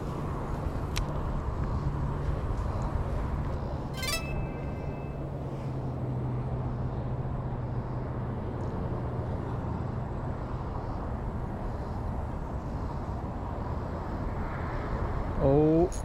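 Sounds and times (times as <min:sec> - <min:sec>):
low hum: 0:04.0 - 0:05.6.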